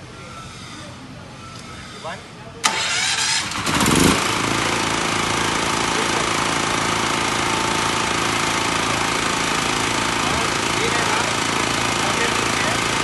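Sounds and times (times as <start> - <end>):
petrol generator running: 1.6 - 13.0.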